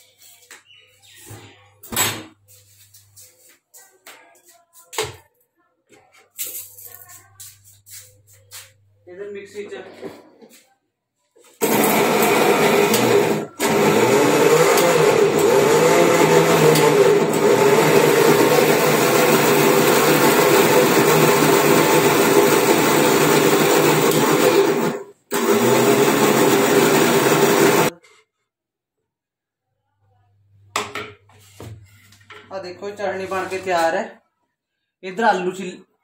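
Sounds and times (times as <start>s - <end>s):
electric mixer grinder running: 11.6s - 27.9s.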